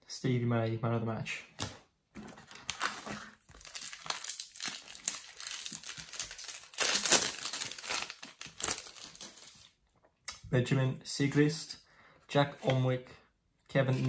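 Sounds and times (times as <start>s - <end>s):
card packet wrapper tearing and crinkling: 2.4s - 9.8s.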